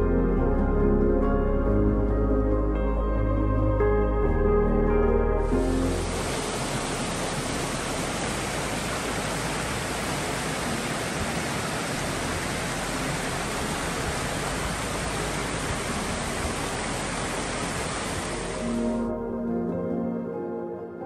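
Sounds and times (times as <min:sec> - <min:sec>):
brook rushing over rocks: 0:05.8 - 0:18.6.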